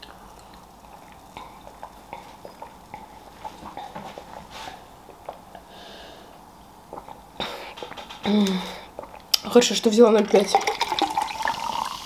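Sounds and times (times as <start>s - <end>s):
person gulping a drink: 0.0s - 4.4s, 6.9s - 9.4s, 10.5s - 12.0s
short breath: 5.7s - 6.4s.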